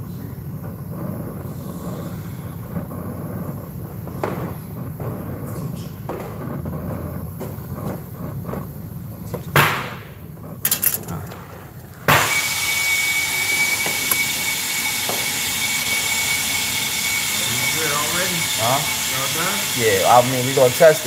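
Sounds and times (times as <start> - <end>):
brazing torch flame burning: 0.0 - 21.0
loud gas hiss with whistle: 1.1 - 6.1, 12.1 - 21.0
sharp loud pop: 9.6 - 10.0.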